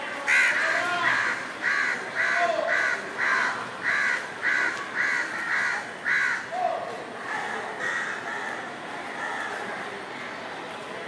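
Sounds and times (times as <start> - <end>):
crow cawing: 0.3 - 6.5, 7.8 - 8.6.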